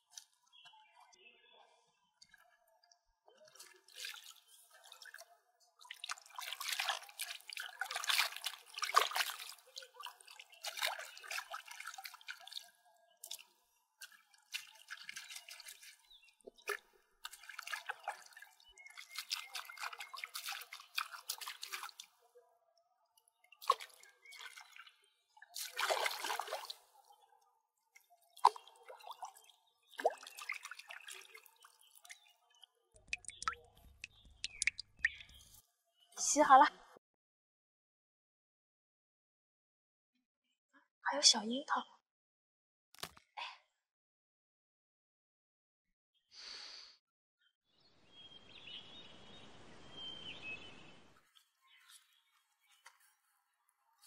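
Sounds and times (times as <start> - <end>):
water drips: 2.2 - 22.2, 23.2 - 27.2, 27.9 - 35.6
water splashing: 5.9 - 22.2, 23.6 - 27.0, 28.4 - 32.3, 33.0 - 35.5.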